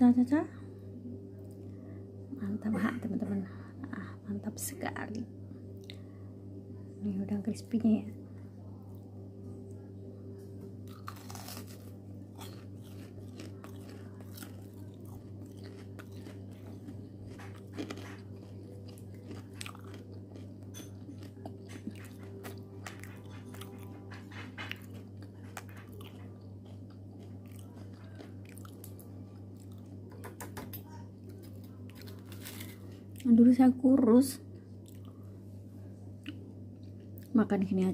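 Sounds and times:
steady low hum: 0:00.0 - 0:37.9
crunching and chewing: 0:10.7 - 0:30.3, 0:31.2 - 0:33.3, 0:34.5 - 0:35.2, 0:36.1 - 0:37.3.

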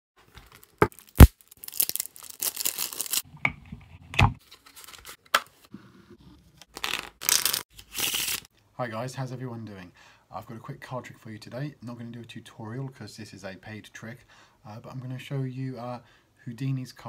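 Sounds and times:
playing cards riffling: 0:06.7 - 0:08.5.

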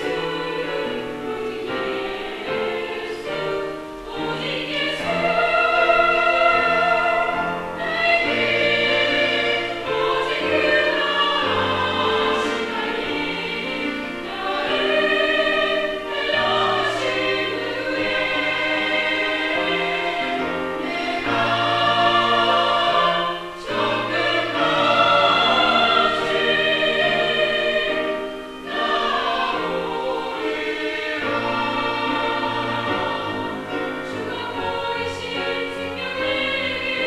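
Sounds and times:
mixed choir singing: 0:00.0 - 0:37.0.

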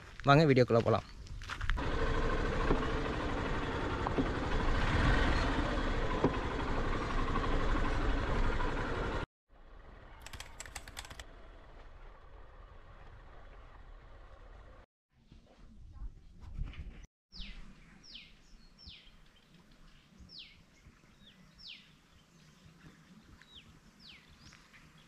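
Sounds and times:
vehicle driving on dirt track: 0:01.7 - 0:10.3, 0:11.2 - 0:14.8
short clicks: 0:10.2 - 0:11.3.

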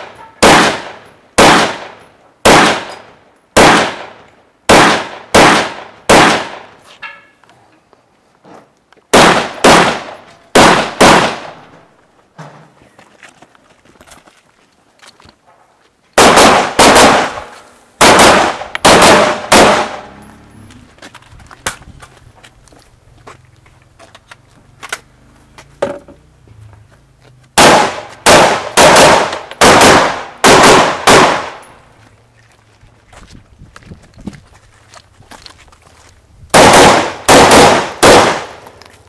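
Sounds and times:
rifle gunshots: 0:00.0 - 0:03.0, 0:03.6 - 0:06.7, 0:09.1 - 0:11.7, 0:16.2 - 0:20.2, 0:27.6 - 0:31.6, 0:36.5 - 0:38.7.

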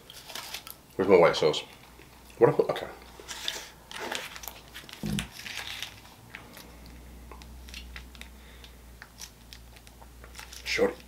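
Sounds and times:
plastic packet crinkling: 0:03.3 - 0:06.7, 0:09.0 - 0:11.0.

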